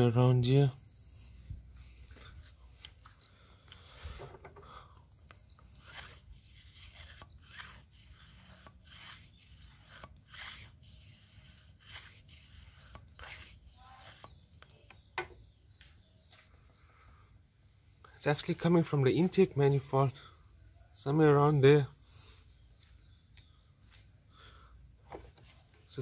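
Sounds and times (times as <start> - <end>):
camera rubbing and scraping: 0.8 - 3.2, 3.9 - 15.1, 25.0 - 26.0.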